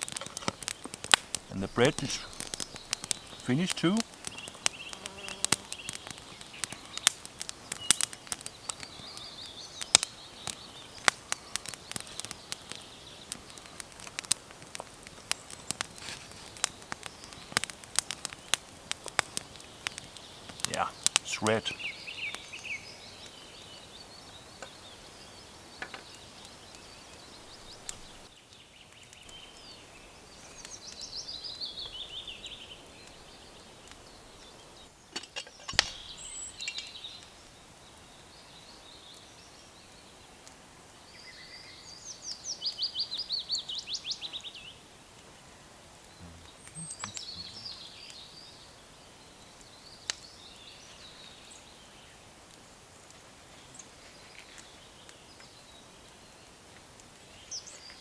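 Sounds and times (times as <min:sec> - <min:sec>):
faint steady background hiss: 0:00.0 - 0:58.0
songbirds singing: 0:00.0 - 0:58.0
sharp clicks: 0:46.6 - 0:47.6.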